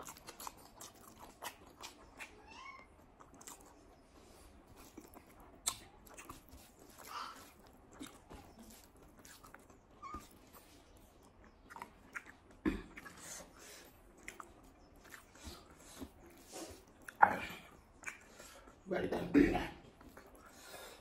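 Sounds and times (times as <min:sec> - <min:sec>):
person chewing food: 0:00.0 - 0:18.8, 0:19.8 - 0:21.0
lip-smacking: 0:04.7 - 0:10.6, 0:11.2 - 0:18.8.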